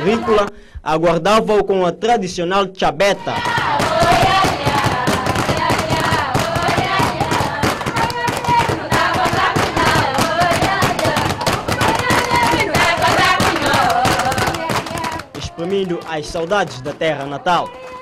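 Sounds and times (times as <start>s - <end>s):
women singing together: 0.0s - 0.5s, 3.2s - 16.2s
fast handclapping and slapping: 3.3s - 18.0s.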